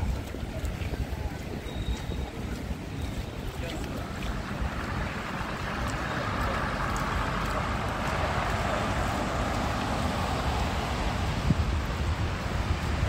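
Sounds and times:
wind rumbling on microphone: 0.0 - 13.0
traffic hiss: 3.3 - 13.0.

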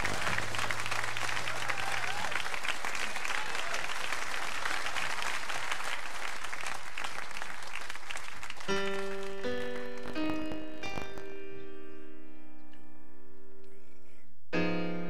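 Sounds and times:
piano notes: 0.0 - 1.8, 8.7 - 13.8, 14.5 - 15.0
audience applauding: 0.0 - 11.3.

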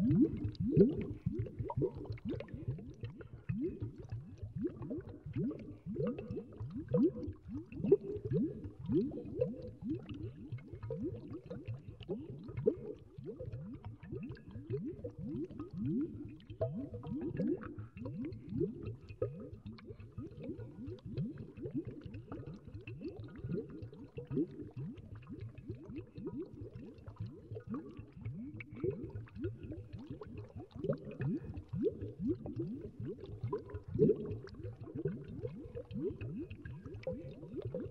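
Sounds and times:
water boiling and bubbling: 0.0 - 37.9.

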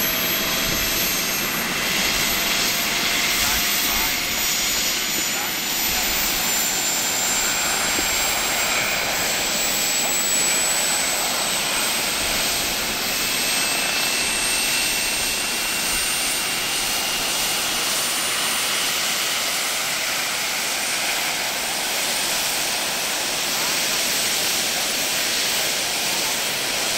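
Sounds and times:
model helicopter turbine whine: 0.0 - 26.9.

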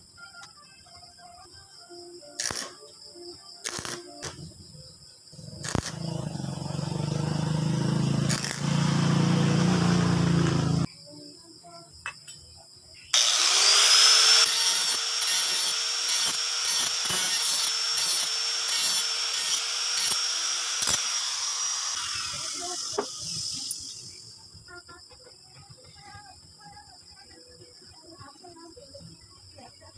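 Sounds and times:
arc welding crackle and buzz: 2.4 - 2.7, 3.6 - 4.4, 5.6 - 6.2, 8.2 - 9.4, 13.2 - 24.2
angle grinder whine: 5.4 - 10.9, 13.1 - 24.4.

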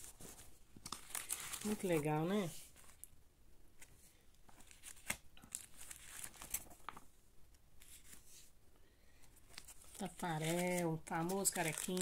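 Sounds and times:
newspaper pages rustling: 0.0 - 3.0, 4.5 - 7.1, 9.4 - 12.0.

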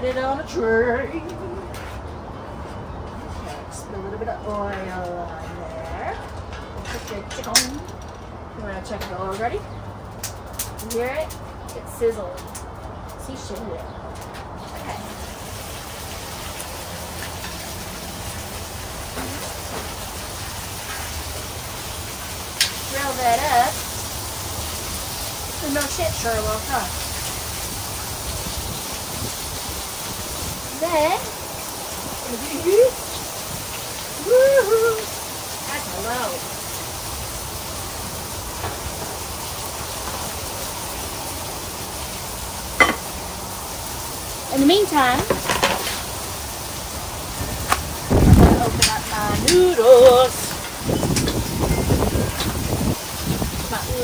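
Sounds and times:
chicken sizzling on griddle: 14.6 - 54.0
wind on microphone: 28.2 - 31.2, 47.4 - 54.0.

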